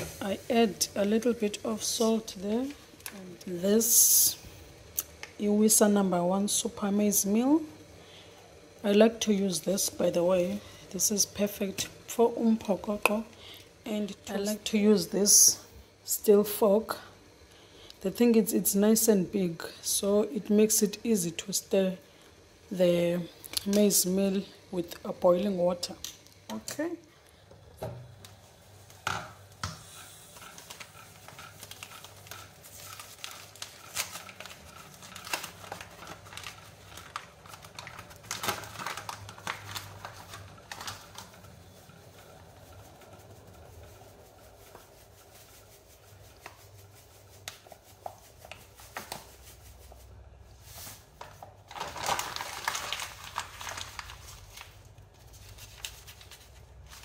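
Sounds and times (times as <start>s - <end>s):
paper bag rustling: 30.2s - 43.5s, 48.5s - 57.0s.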